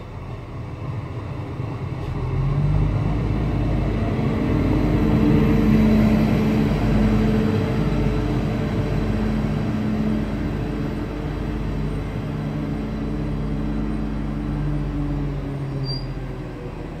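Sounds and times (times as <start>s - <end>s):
diesel railcar engine hum: 0.0s - 17.0s
brief high squeak: 15.7s - 16.2s.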